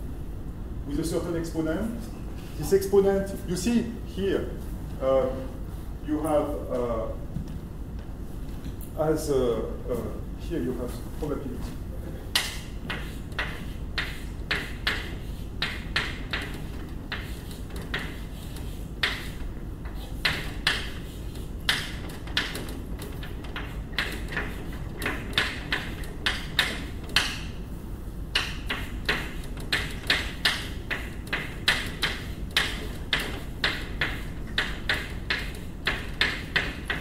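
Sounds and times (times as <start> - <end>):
low room hum: 0.0 - 37.0
chalk tapping and scratching: 12.3 - 27.6, 28.3 - 37.0.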